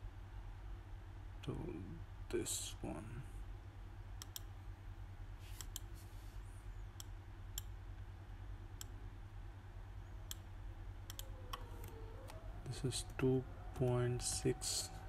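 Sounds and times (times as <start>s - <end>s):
steady low hum: 0.0s - 15.0s
computer mouse clicks: 4.2s - 4.5s, 5.6s - 5.9s, 11.1s - 12.4s.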